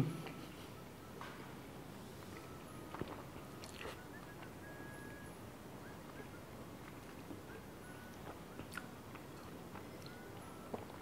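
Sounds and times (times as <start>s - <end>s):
faint chewing: 2.2s - 4.6s, 6.1s - 11.0s.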